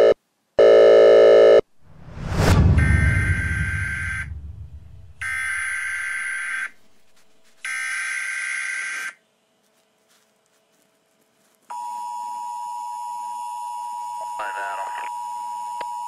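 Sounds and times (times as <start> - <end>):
deep boom: 1.8 - 6.0.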